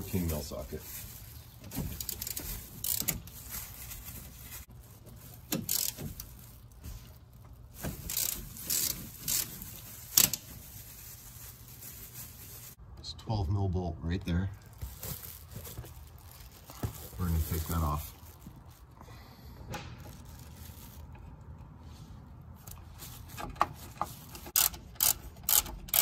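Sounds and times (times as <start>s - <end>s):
ratchet wrench ratcheting: 2.0s - 3.2s, 5.6s - 6.0s, 8.1s - 9.5s, 24.4s - 26.0s.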